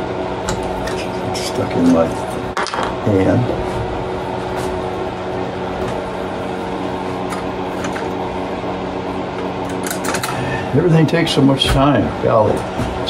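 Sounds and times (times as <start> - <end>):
electric hum: 0.0 - 13.0.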